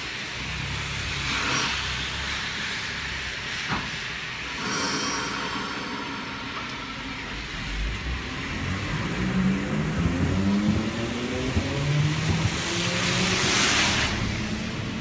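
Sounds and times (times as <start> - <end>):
tyres hissing on wet asphalt: 0.0 - 9.8, 10.4 - 15.0
car engine accelerating: 5.3 - 15.0.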